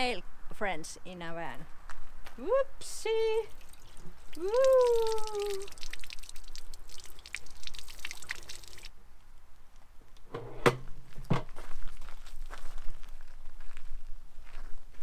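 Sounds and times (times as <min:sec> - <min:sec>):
water splashing into toilet bowl: 0:03.5 - 0:08.9.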